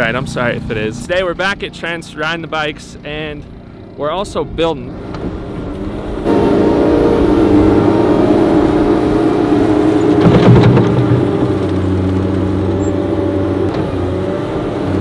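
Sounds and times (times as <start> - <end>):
loader diesel engine under load: 4.9 - 15.0.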